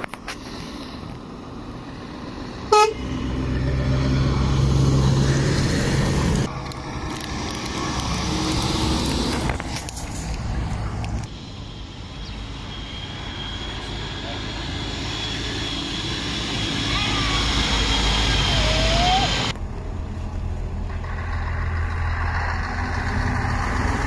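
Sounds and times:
lorry diesel engine passing: 0:01.2 - 0:24.0
vehicle horn toot: 0:02.7 - 0:03.0.

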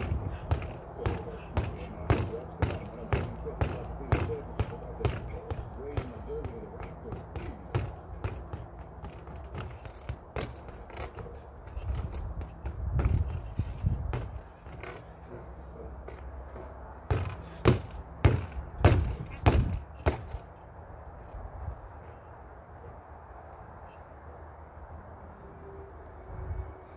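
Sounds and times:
gloved punches on punching bag: 0:00.0 - 0:10.8, 0:17.1 - 0:20.3.

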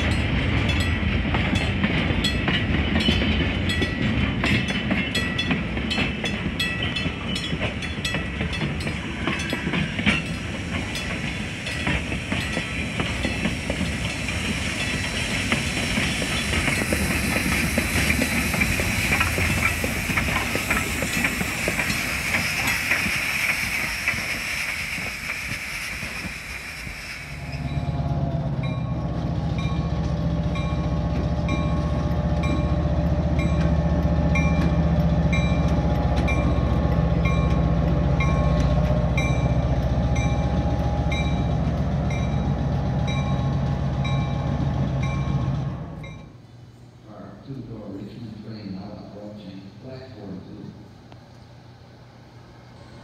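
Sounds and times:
locomotive bell ringing: 0:00.0 - 0:15.2, 0:27.5 - 0:46.4
diesel locomotive engine running: 0:00.0 - 0:46.4
high hiss: 0:09.6 - 0:27.8.

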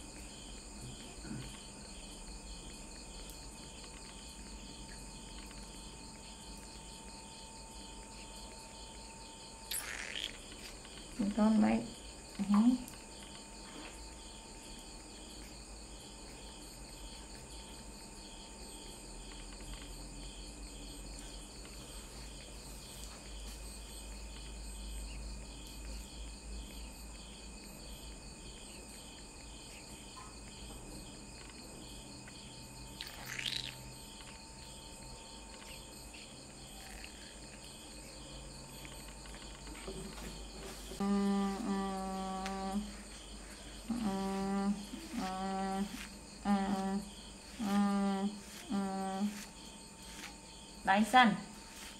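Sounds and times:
insects chirping: 0:00.0 - 0:51.9
person humming: 0:41.0 - 0:43.0, 0:43.8 - 0:49.5.

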